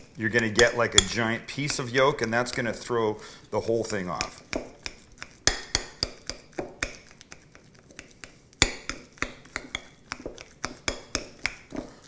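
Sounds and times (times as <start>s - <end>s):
utensil clinking against glass bowl: 0.6s - 2.7s.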